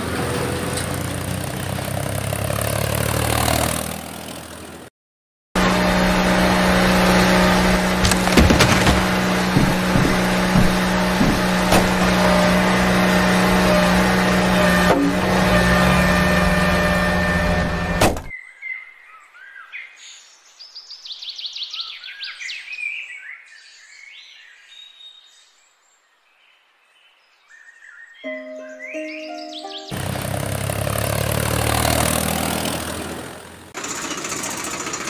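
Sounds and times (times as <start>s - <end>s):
birds chirping and trilling: 18.3s - 30.3s.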